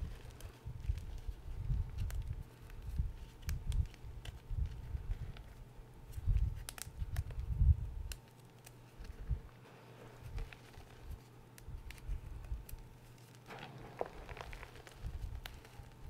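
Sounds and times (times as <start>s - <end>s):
chalk chunks crackling: 12.7s - 16.0s.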